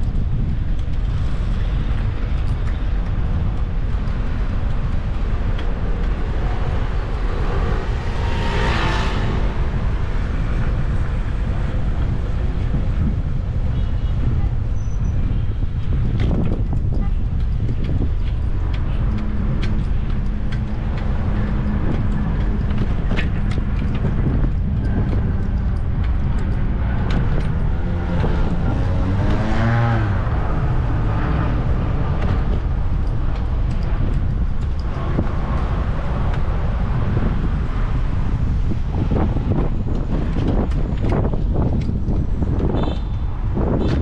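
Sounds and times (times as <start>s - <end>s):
traffic rumble: 0.0s - 44.0s
wind on microphone: 0.0s - 44.0s
motor vehicle passing: 5.0s - 12.8s, 17.9s - 42.2s.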